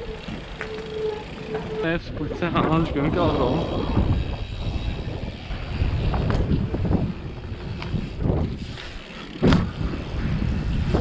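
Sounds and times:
wind rushing over microphone: 1.4s - 11.0s
bike rattling knocks: 5.8s - 11.0s.

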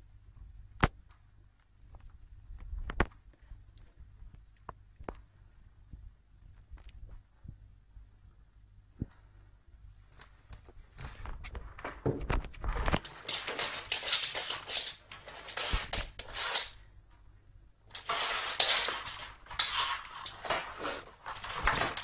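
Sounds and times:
cardboard box scraping on wood floor: 17.9s - 22.0s.

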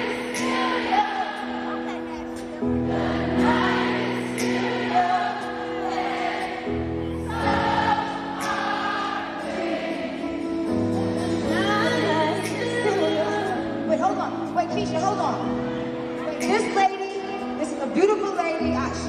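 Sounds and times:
voices singing: 0.0s - 13.6s
live music held chords: 0.0s - 19.0s.

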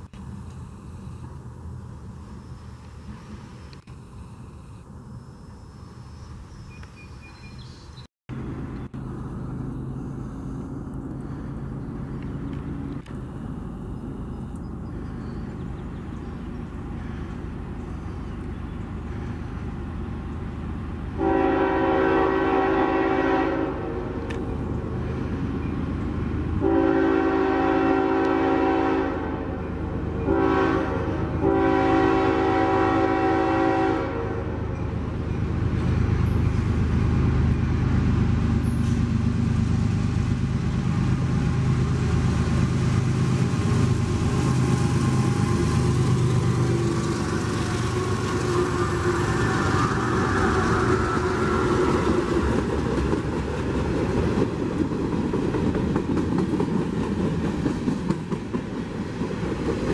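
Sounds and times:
train rumble: 0.0s - 7.5s, 8.3s - 59.9s
locomotive engine: 8.3s - 59.9s
locomotive air horn blasts: 21.2s - 24.3s, 26.6s - 34.8s, 45.2s - 52.1s.

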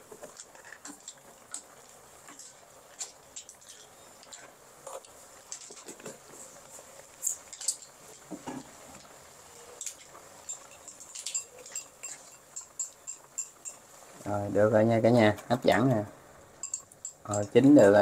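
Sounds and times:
faint crackling from pan: 0.0s - 18.0s
utensil clinking in pan: 9.8s - 14.0s, 16.6s - 17.7s.

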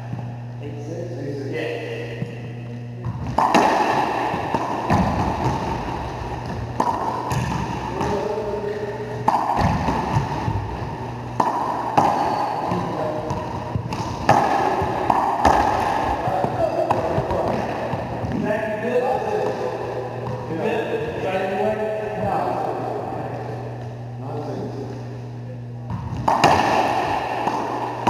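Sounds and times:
racquetball smacks echoing: 3.0s - 8.4s, 9.2s - 18.6s, 25.9s - 28.0s.

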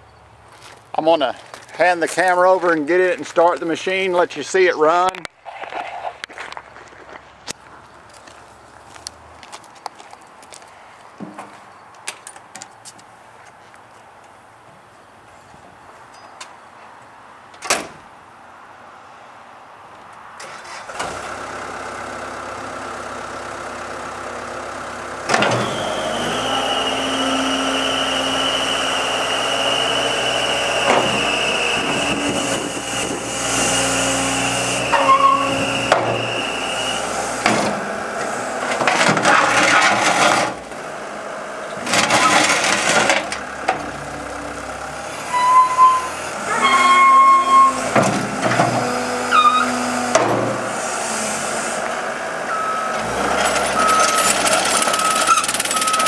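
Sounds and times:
diesel engine revving: 20.5s - 56.0s
short beeps: 53.8s - 54.3s.

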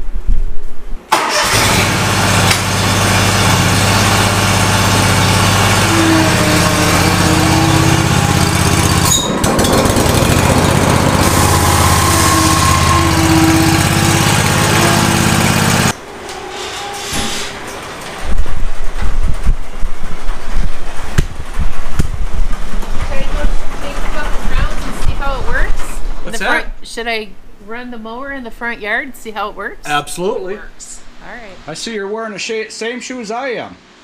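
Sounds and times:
mower engine running: 1.1s - 16.2s.

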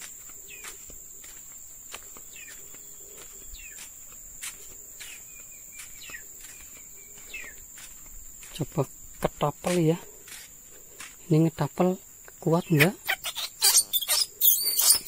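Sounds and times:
insects droning: 0.0s - 15.0s
short high falling chirps: 12.8s - 15.0s.

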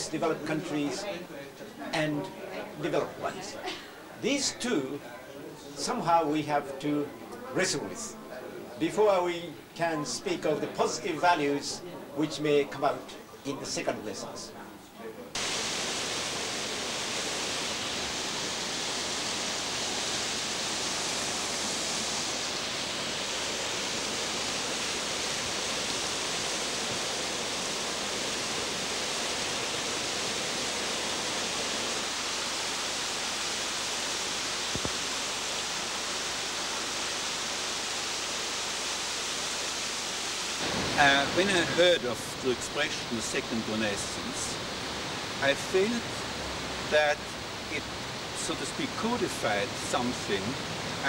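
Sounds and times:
waterfall rushing: 15.4s - 51.0s.

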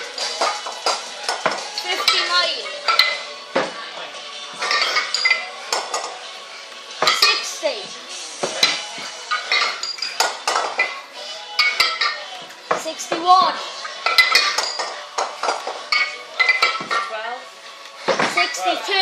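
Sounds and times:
kettlebells clanking: 7.0s - 7.5s, 8.4s - 17.1s.

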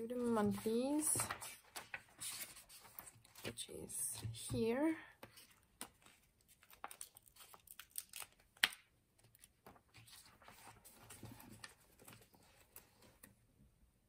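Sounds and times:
pages rustling: 0.2s - 3.7s, 5.2s - 13.3s.

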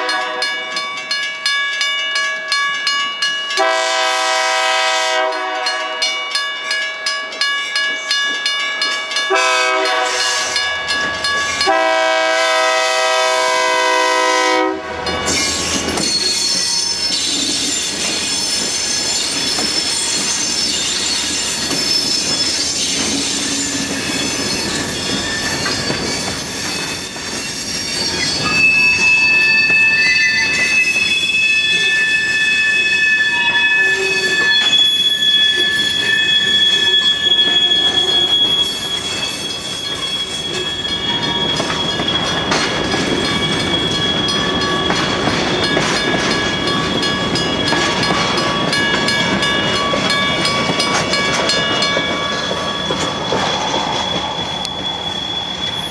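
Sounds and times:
train wheels squealing: 7.8s - 12.0s, 15.1s - 55.9s
train wheels clicking: 15.1s - 55.9s.

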